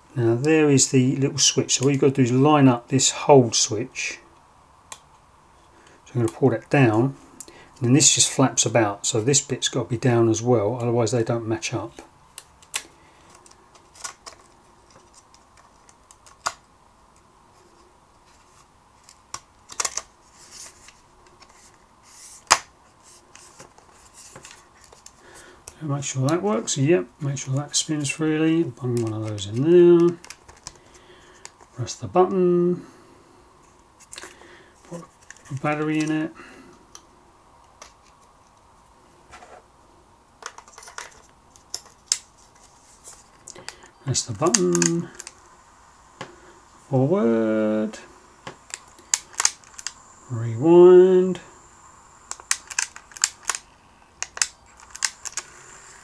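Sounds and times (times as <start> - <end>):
plastic and metal clicks: 43.4 - 45.4, 52.3 - 55.5.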